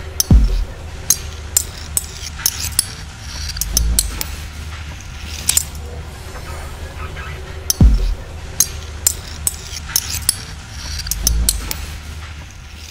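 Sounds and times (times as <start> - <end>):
sharp metallic clicks: 0.0 - 5.8, 7.7 - 12.9
steady low hum: 0.0 - 12.9
dull low thud: 7.8 - 8.2.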